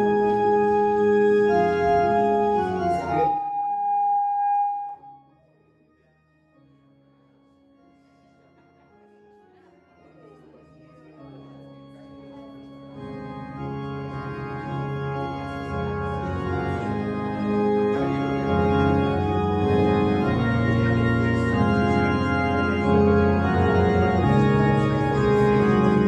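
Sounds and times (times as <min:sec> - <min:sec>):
organ chords: 0:00.0 - 0:05.3, 0:10.8 - 0:26.0.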